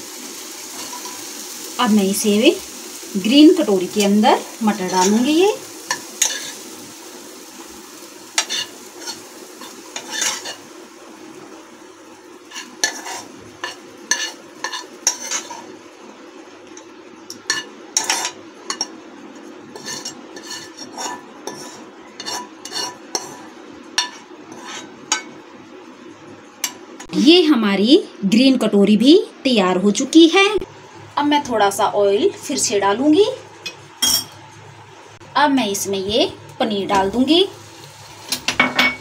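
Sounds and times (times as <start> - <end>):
spoon scraping frying pan: 0.8 - 1.3, 5.9 - 6.6, 8.4 - 10.7, 12.5 - 15.8, 17.3 - 19.0, 19.7 - 25.4.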